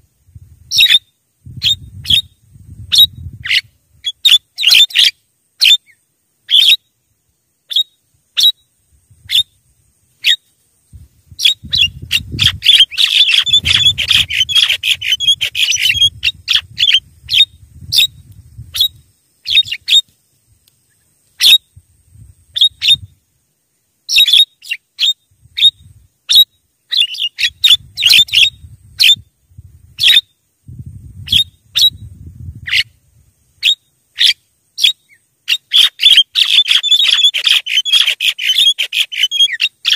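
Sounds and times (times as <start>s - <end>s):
bird chattering calls: 11.4s - 18.1s, 33.6s - 39.9s.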